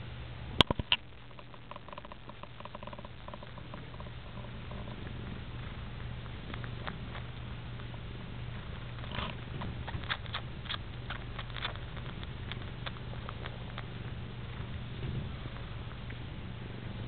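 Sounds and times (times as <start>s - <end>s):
cat purring: 1.3s - 17.0s
cat suckling wet clicks: 1.4s - 17.0s.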